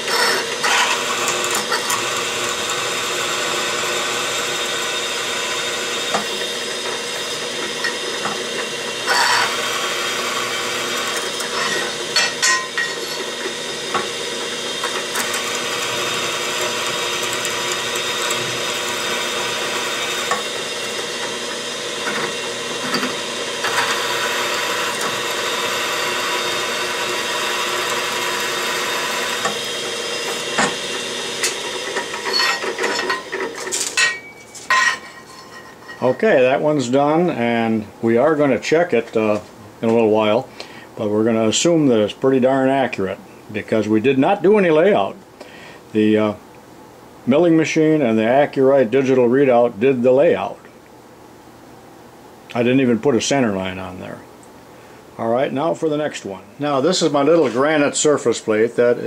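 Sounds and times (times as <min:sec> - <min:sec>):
reamer clicking and scraping: 0:00.0 - 0:34.0
drill press humming: 0:00.0 - 0:35.1.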